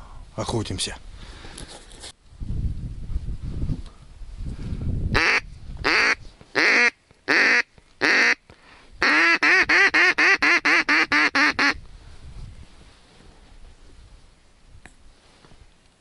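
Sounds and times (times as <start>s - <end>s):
duck call quacks: 5.2s - 8.4s, 9.0s - 11.8s.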